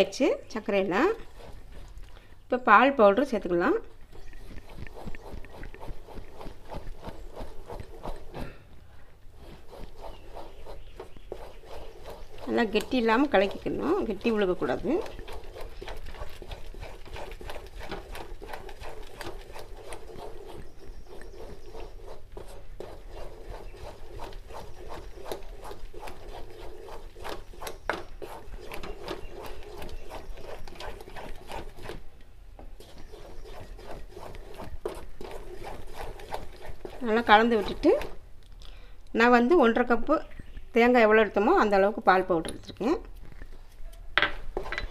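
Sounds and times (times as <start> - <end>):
spatula scraping and knocking a pan: 9.4 - 32.0, 32.6 - 38.2, 44.2 - 44.9.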